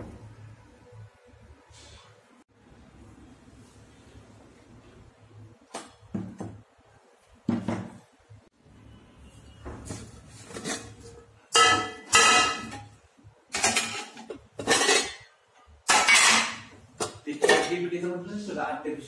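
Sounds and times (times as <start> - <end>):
metal lid clanking: 10.5 - 17.8.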